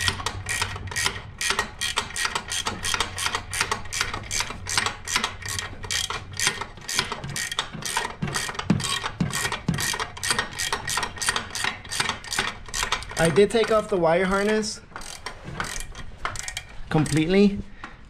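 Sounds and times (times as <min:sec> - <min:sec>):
hand ratchet clicking: 0:00.0 - 0:17.4.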